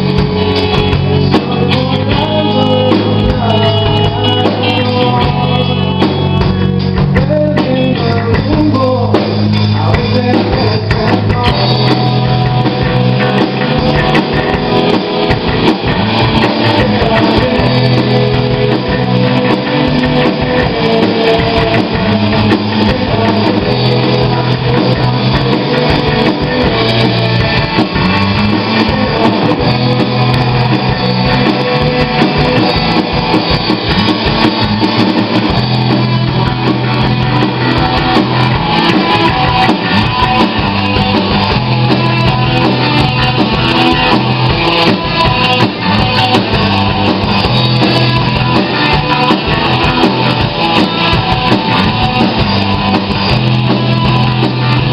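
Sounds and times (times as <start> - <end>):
bass guitar: 0.0 - 54.9
distorted electric guitar: 0.0 - 54.9
drum kit: 0.0 - 54.9.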